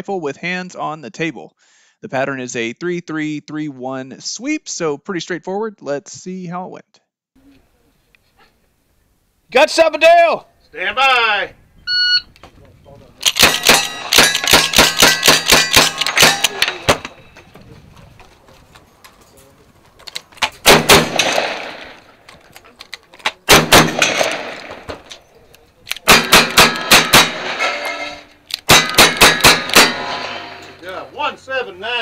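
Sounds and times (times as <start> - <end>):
rifle shots: 13.2 - 17.2, 20.4 - 22.1, 23.4 - 25.1, 26.0 - 27.9, 28.5 - 30.8
shotgun blasts: 13.3 - 17.2, 20.6 - 22.1, 23.4 - 25.1, 26.0 - 30.8
steel targets clanging: 13.3 - 17.4, 23.8 - 25.0, 26.1 - 31.1.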